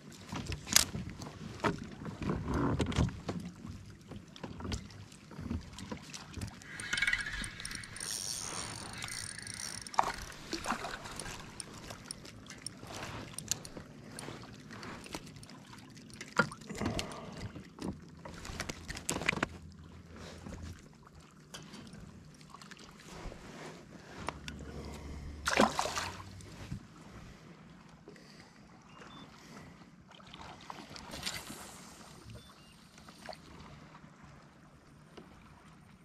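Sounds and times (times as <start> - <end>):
fishing reel and rod clicks: 6.6 - 14.2.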